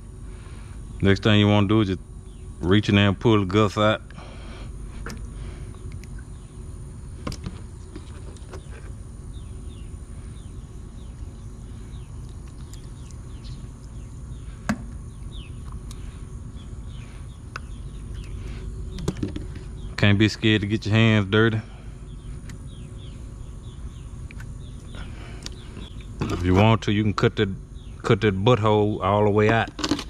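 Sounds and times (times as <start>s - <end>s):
low outdoor rumble: 0.0s - 30.0s
handling clicks and knocks: 19.0s - 19.6s, 29.4s - 30.0s.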